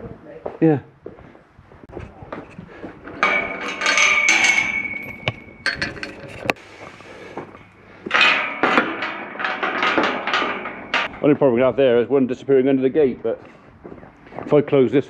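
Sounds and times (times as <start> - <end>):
metal gates clanging: 3.0 - 6.6, 7.5 - 12.7.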